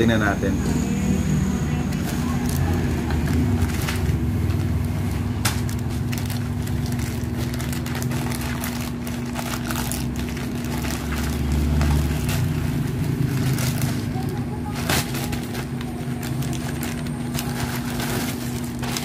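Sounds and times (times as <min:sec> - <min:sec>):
plastic pouch crinkling and tearing: 0:01.9 - 0:19.0.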